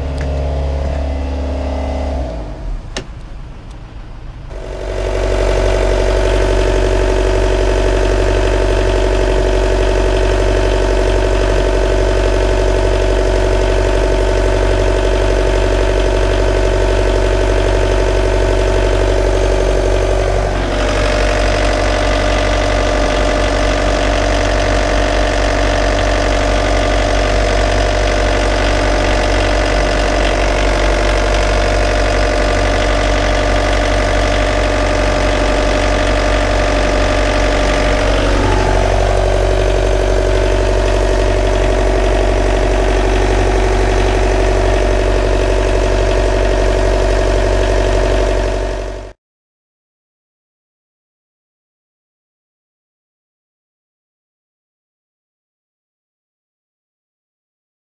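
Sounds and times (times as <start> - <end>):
marine diesel engine idling: 0.0 - 49.2.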